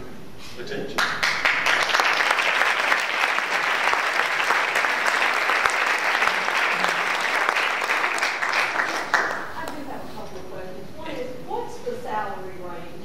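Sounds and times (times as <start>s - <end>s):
audience applauding: 1.0s - 9.8s.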